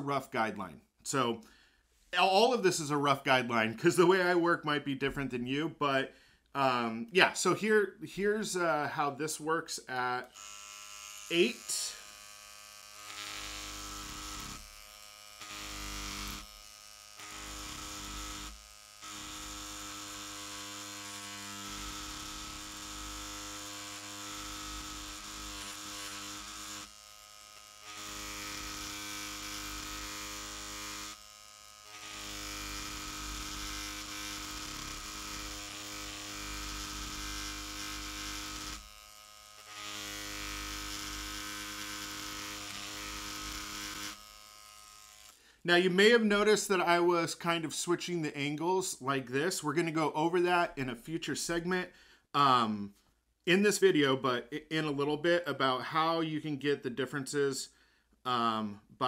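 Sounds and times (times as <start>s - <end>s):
tattoo machine buzzing: 10.2s - 45.4s.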